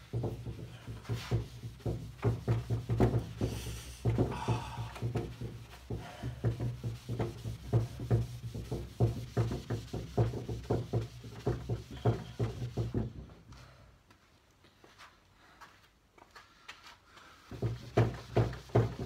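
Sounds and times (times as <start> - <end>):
pad rubbing on wooden table: 0.0 - 13.1, 17.5 - 19.0
soft knocks: 0.0 - 13.4, 17.5 - 19.0.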